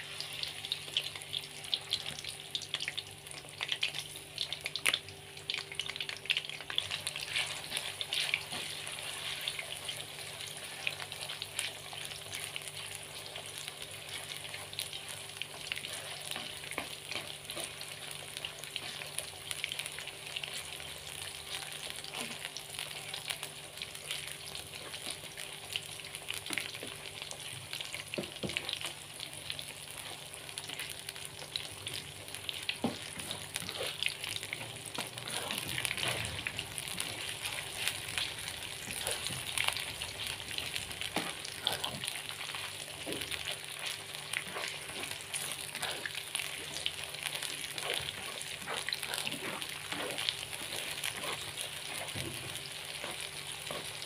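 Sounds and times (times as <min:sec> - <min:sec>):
shrimp sizzling in hot oil: 0:00.0 - 0:54.0
spatula scraping a wok: 0:07.1 - 0:09.8.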